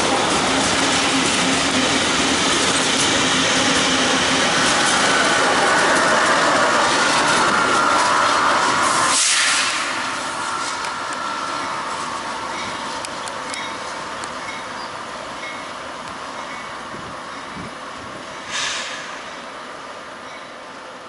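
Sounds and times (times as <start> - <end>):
diesel locomotive engine drone: 0.0 - 21.0
distant locomotive approaching: 0.0 - 21.0.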